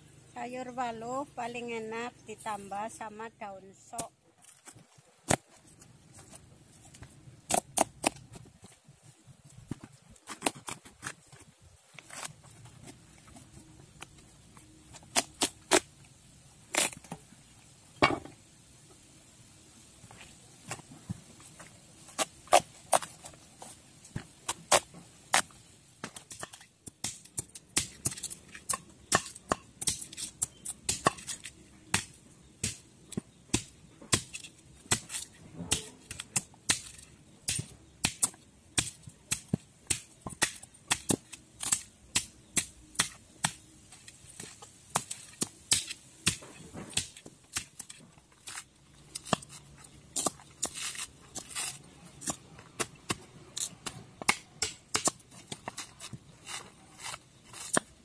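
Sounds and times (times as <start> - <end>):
machete hacking coconut husk: 3.8 - 5.8, 6.9 - 8.7, 9.6 - 11.4, 14.9 - 15.9, 16.7 - 17.2, 22.0 - 58.0.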